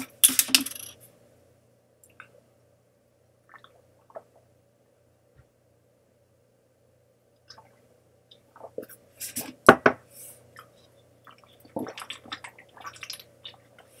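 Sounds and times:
person gulping water: 3.5s - 4.4s, 11.3s - 13.9s.

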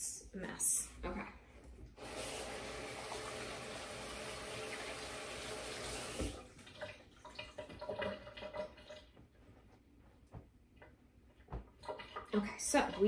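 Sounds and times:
kitchen tap running: 2.0s - 9.2s, 11.7s - 13.0s.

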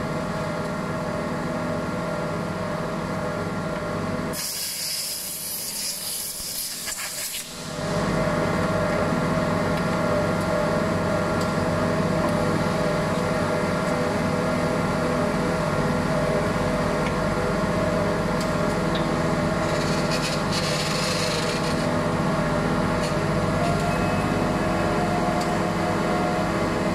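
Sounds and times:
compressed air hissing: 4.4s - 7.5s
hydraulic power unit humming: 7.5s - 26.9s
high machine tone: 23.6s - 26.9s.

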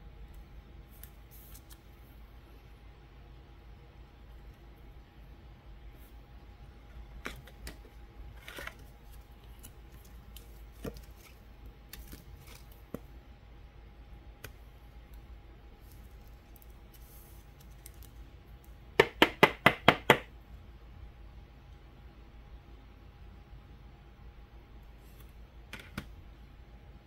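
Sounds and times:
cards rustling and clicking: 0.9s - 2.0s, 7.1s - 13.1s, 15.8s - 18.2s.

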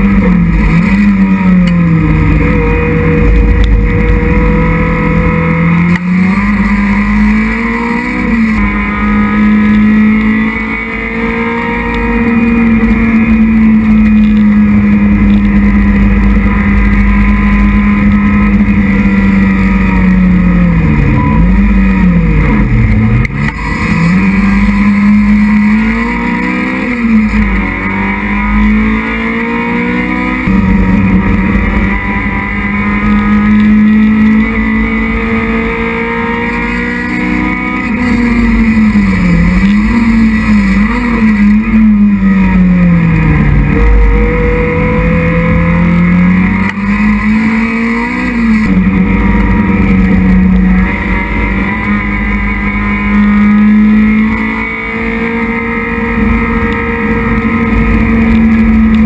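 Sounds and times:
race car engine at high revs: 0.0s - 59.0s.

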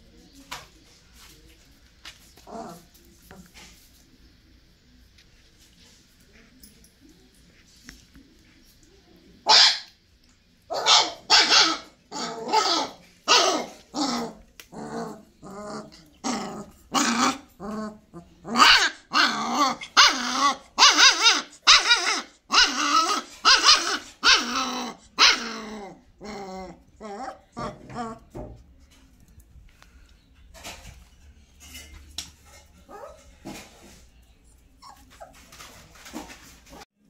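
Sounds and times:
puppies growling and yapping: 12.1s - 28.4s, 34.8s - 36.9s.

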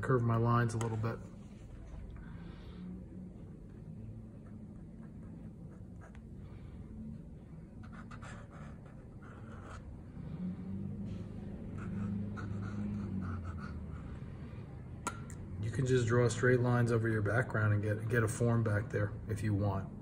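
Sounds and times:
low steady hum: 0.0s - 20.0s
pen nib scratching paper: 4.3s - 6.5s, 7.6s - 10.1s, 11.5s - 14.4s.

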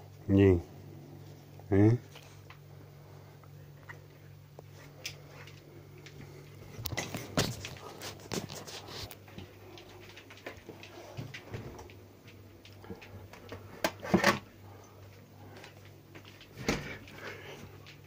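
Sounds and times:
refrigerator shelves clicking and knocking: 13.4s - 14.5s.

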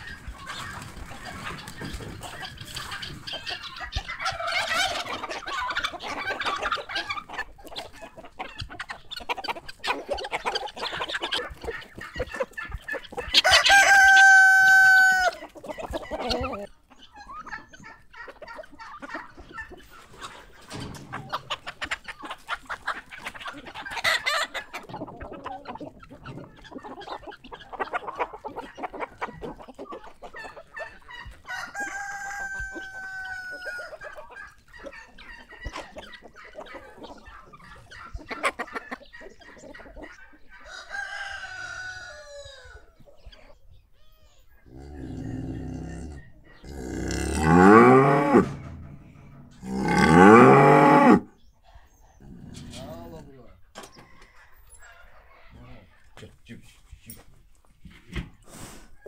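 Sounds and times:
chickens clucking: 0.0s - 59.0s
rooster crowing: 13.4s - 15.4s, 31.5s - 33.9s.

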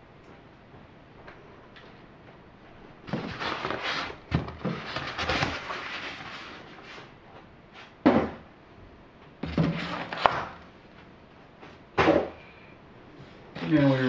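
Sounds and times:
styrofoam scraping and rustling: 3.1s - 7.1s, 9.4s - 10.6s.

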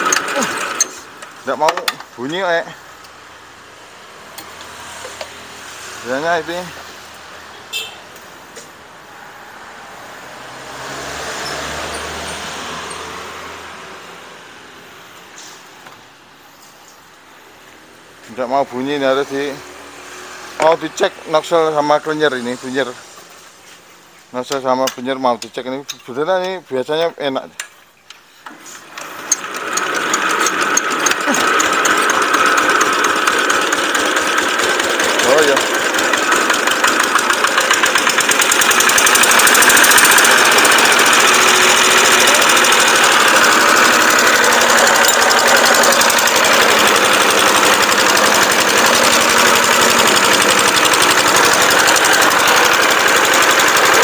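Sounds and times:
vehicle passing by: 2.7s - 15.8s, 17.3s - 23.7s
diesel engine knocking: 29.6s - 54.0s.

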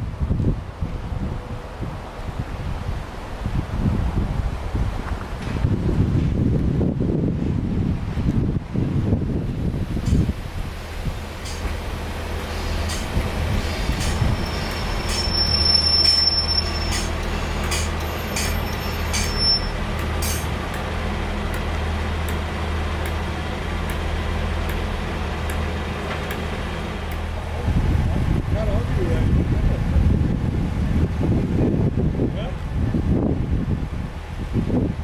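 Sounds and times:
low diesel drone: 9.2s - 34.6s
wheels clicking over rail joints: 11.2s - 27.4s
high thin wheel squeal: 12.6s - 20.5s.

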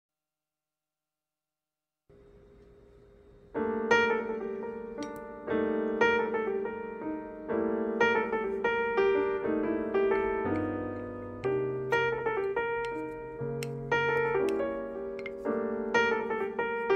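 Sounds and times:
piano chords: 3.4s - 16.9s.

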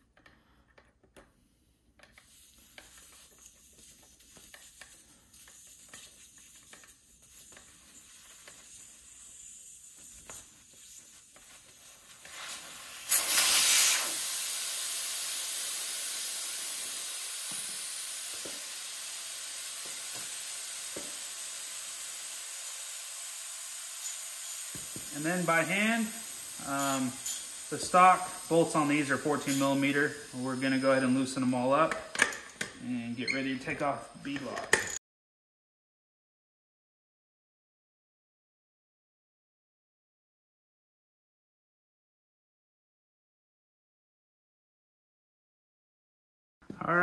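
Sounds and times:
air hissing out of a tire: 2.2s - 33.4s.

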